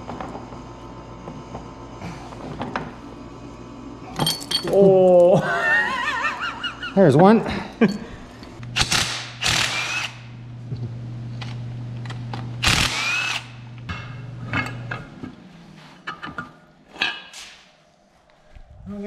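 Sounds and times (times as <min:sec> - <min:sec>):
cordless drill spinning bolts: 0:08.8 - 0:10.2, 0:12.6 - 0:13.5.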